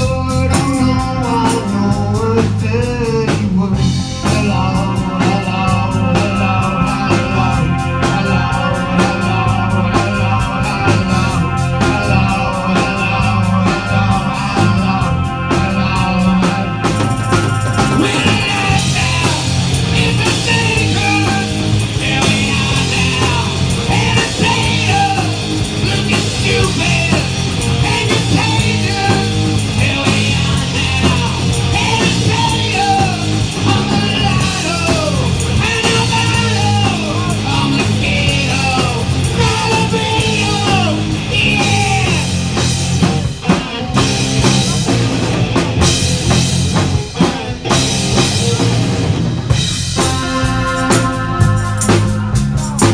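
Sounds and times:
lead vocal singing: 0:00.0 - 0:48.8
drums: 0:00.0 - 0:52.9
live rock band: 0:00.0 - 0:52.9.

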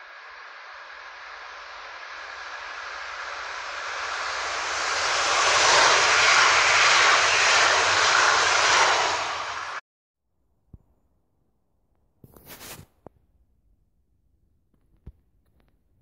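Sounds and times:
train passing at speed: 0:00.0 - 0:09.8.

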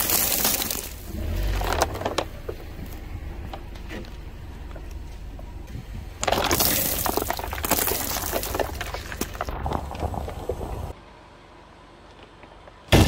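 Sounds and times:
tyre crushing brittle objects: 0:00.0 - 0:03.0, 0:06.2 - 0:10.9.

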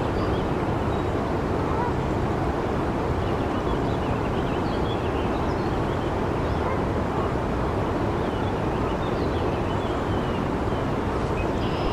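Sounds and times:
river water rushing: 0:00.0 - 0:11.9
faint bird chirps: 0:11.4 - 0:11.9.

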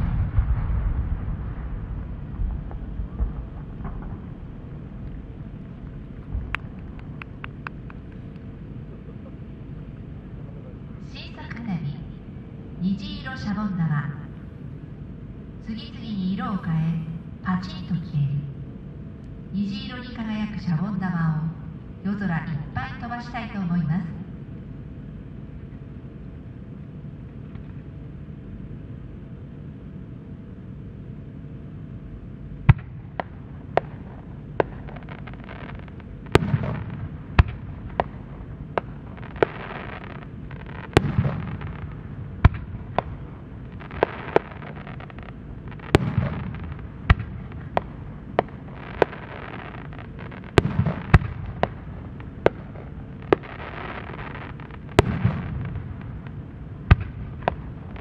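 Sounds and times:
firework shells booming: 0:00.0 - 0:08.1, 0:32.7 - 0:58.0
steady background noise: 0:00.0 - 0:58.0.

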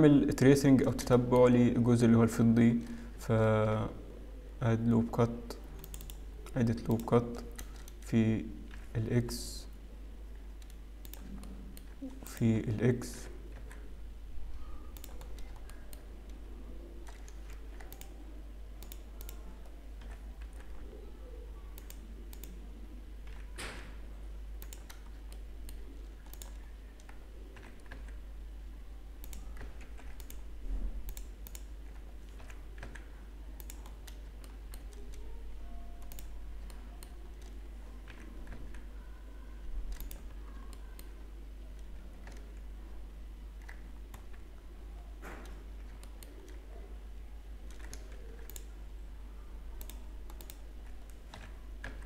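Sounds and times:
steady low hum: 0:00.0 - 0:52.0
keyboard keys clicking: 0:05.8 - 0:08.0, 0:14.9 - 0:16.4, 0:17.0 - 0:18.2, 0:24.6 - 0:28.2, 0:29.2 - 0:30.4, 0:31.0 - 0:39.0, 0:39.9 - 0:41.2, 0:47.6 - 0:48.7, 0:49.8 - 0:52.0
mouse buttons clicking: 0:31.1 - 0:39.1, 0:49.8 - 0:52.0.

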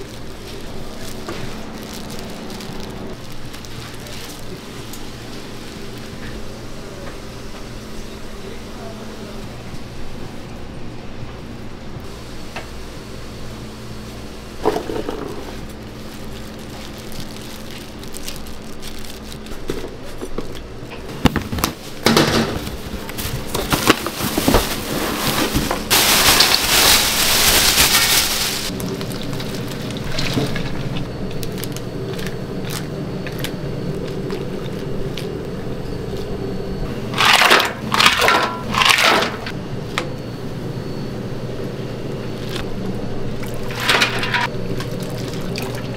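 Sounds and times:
low hum: 0:00.0 - 0:06.9, 0:22.7 - 0:45.9
kitchen clatter and knocks: 0:21.1 - 0:28.2, 0:37.2 - 0:39.5.

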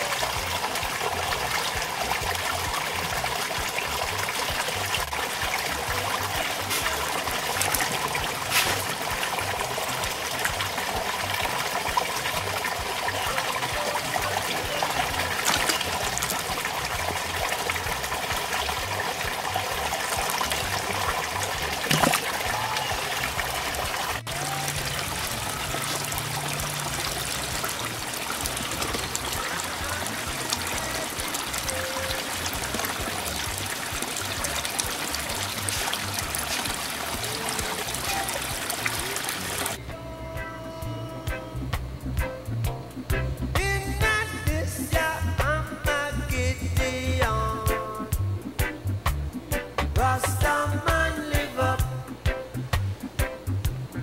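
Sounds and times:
water trickling into pond: 0:00.0 - 0:39.8.

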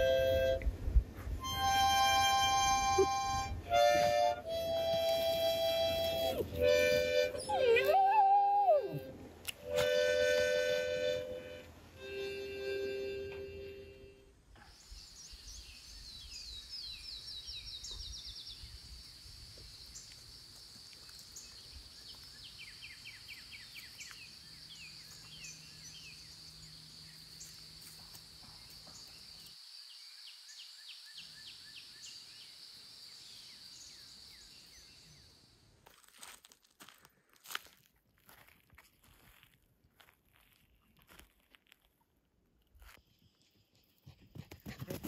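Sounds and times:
birds chirping: 0:14.7 - 0:35.5
insects droning: 0:18.4 - 0:35.8.

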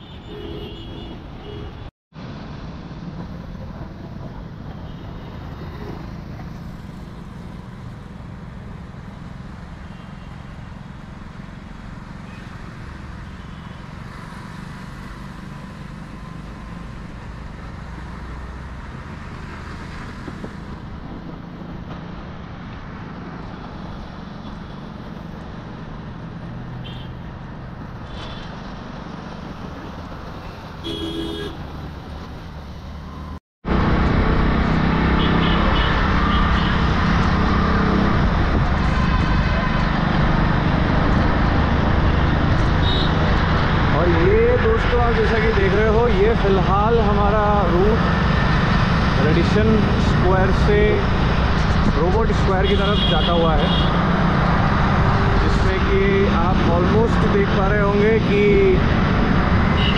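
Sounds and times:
vehicle horn honking: 0:00.0 - 0:01.8, 0:30.8 - 0:31.6, 0:35.2 - 0:36.8, 0:52.7 - 0:54.0
road traffic rumble: 0:00.0 - 0:59.9.

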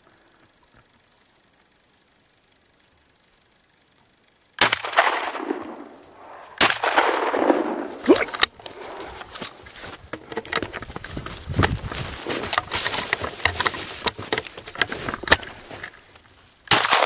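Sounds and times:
small clicks: 0:00.2 - 0:03.0
gunshots with rolling echo: 0:04.6 - 0:08.0, 0:16.7 - 0:17.0
sharp crack: 0:04.6 - 0:09.0, 0:16.7 - 0:17.0.

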